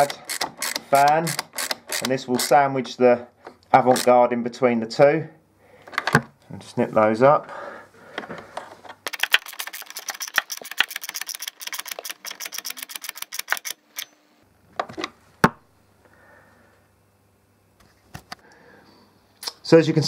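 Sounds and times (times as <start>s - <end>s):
hand ratchet clicking: 0.0s - 2.6s, 9.1s - 14.1s.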